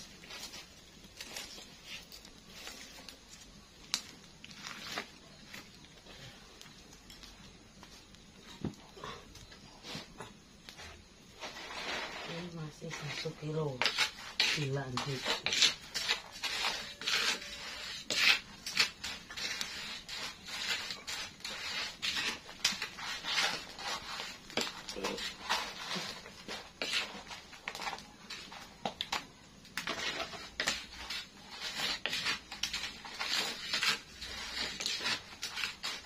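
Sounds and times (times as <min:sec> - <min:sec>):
spatula scraping frying pan: 0:11.4 - 0:28.7, 0:29.8 - 0:36.0.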